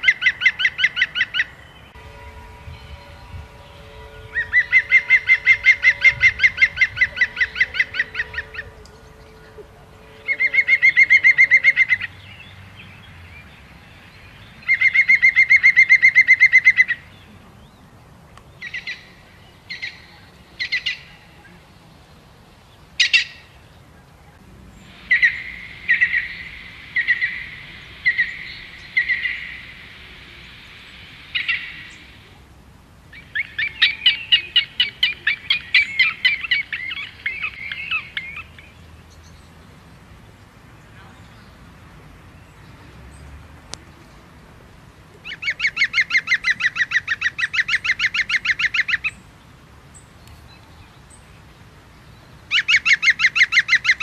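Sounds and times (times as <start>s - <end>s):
small birds singing: 0.0s - 32.5s, 33.1s - 54.0s.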